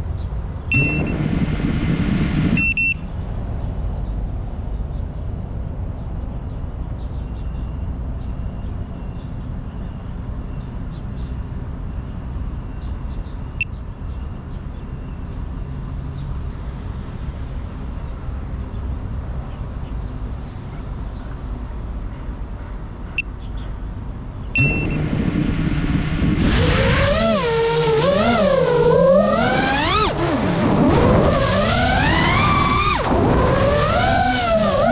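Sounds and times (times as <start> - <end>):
short electronic beeps: 0.7 - 1.4, 2.5 - 3.1, 24.6 - 25.0
drone motors whining: 0.7 - 3.0, 24.6 - 34.9
low rumble: 0.7 - 3.0, 24.6 - 27.1.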